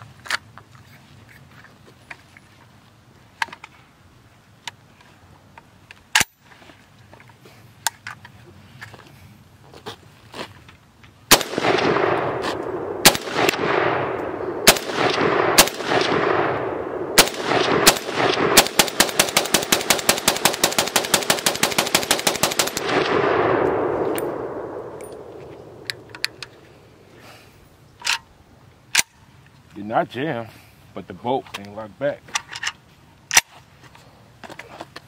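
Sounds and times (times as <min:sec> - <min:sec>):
pistol gunshots with echo: 0:11.3 - 0:26.1.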